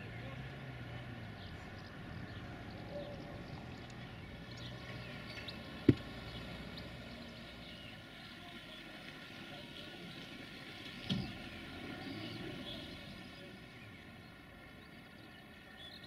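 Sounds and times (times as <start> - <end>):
sharp thump: 5.9 - 6.1.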